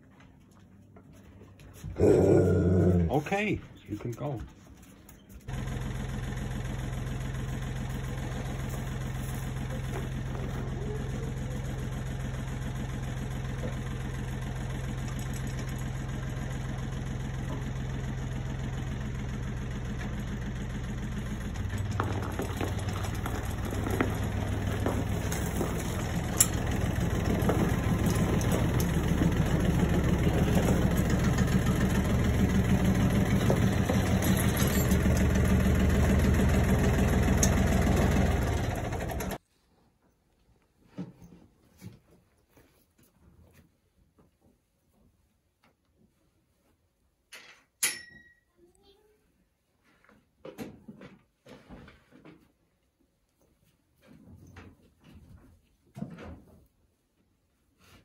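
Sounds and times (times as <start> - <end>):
tractor engine idling and revving: 5.5 - 39.4
sharp metal clanks: 47.4 - 48.5.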